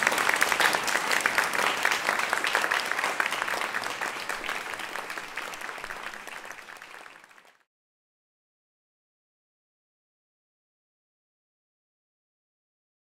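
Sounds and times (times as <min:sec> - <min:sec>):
audience applauding: 0:00.0 - 0:07.7.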